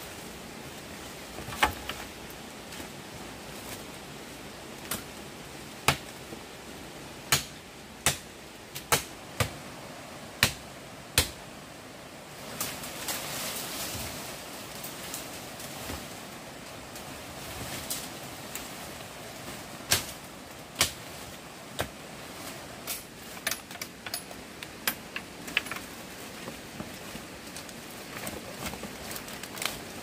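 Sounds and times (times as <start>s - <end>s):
rustling: 0.1s - 4.1s, 12.4s - 30.0s.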